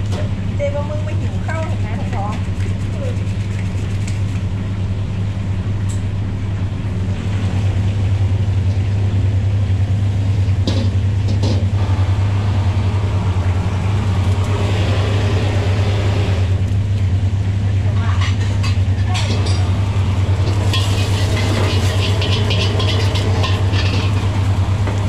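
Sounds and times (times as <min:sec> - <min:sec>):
low hum: 0:00.0 - 0:25.0
gas burner rushing: 0:05.5 - 0:25.0
wok clanking on burner: 0:18.0 - 0:25.0.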